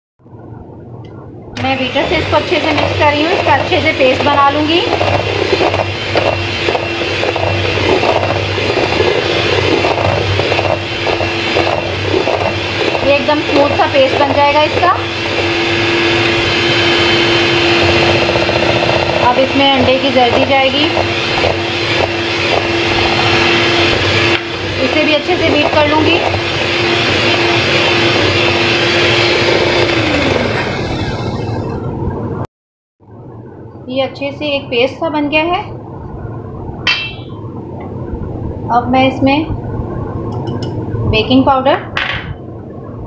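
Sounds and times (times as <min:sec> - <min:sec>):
beaters scraping steel bowl: 0:01.6 - 0:31.8
electric beater motor hum: 0:01.6 - 0:31.9
electric hand mixer running: 0:01.6 - 0:31.9.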